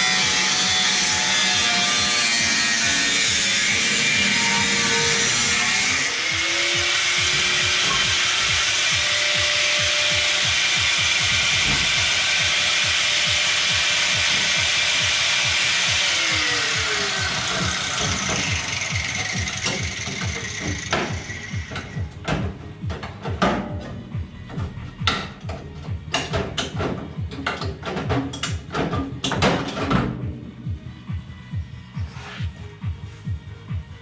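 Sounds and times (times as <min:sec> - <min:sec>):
power tool cutting sheet steel: 0:00.0 - 0:22.1.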